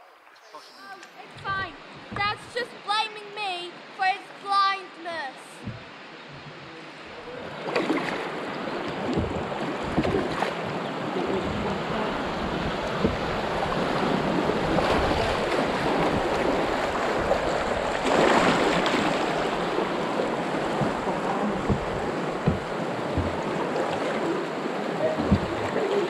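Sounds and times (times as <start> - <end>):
river water rushing: 1.2 - 26.0
paddle stroke splashes: 7.2 - 26.0.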